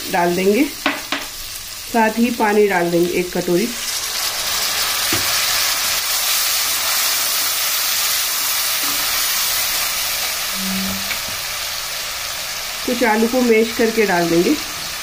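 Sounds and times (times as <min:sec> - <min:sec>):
curry sizzling in a pan: 0:00.0 - 0:15.0.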